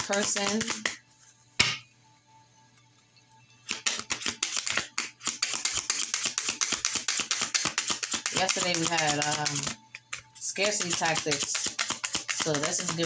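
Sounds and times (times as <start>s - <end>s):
cards being shuffled: 0.0s - 1.0s, 3.6s - 13.0s.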